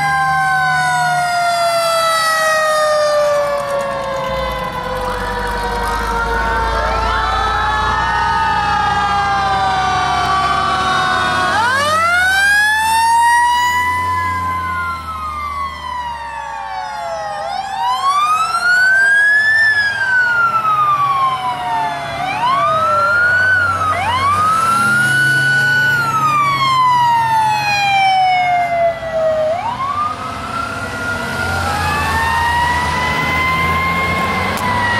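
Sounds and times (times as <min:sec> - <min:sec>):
fire truck sirens wailing: 0:00.0 - 0:34.9
truck engines running: 0:00.0 - 0:34.9.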